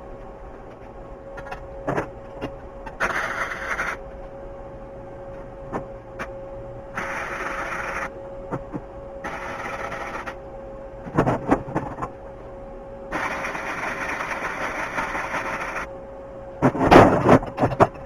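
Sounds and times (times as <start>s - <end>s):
welding arc crackling and hissing: 7.0s - 8.1s, 13.1s - 15.9s.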